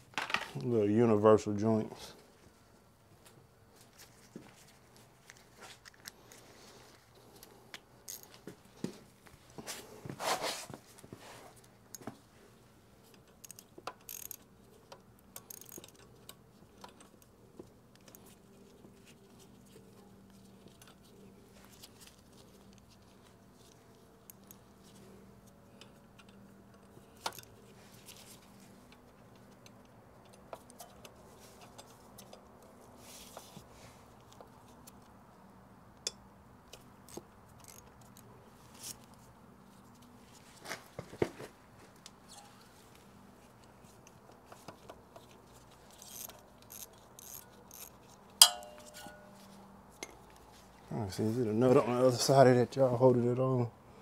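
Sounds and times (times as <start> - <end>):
metal hand tools clinking: 48.4 - 49.5.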